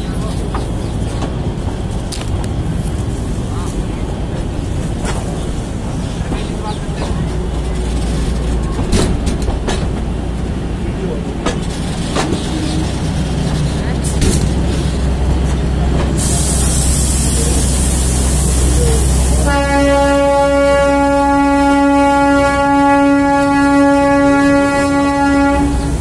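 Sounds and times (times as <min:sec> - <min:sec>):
train rumbling on track: 0:00.0 - 0:26.0
train horn blast: 0:19.3 - 0:26.0.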